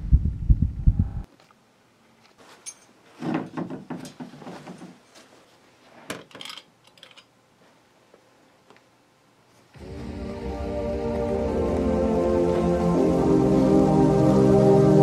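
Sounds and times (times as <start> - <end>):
soft handling rustling: 1.3 - 3.2, 4.2 - 6.1.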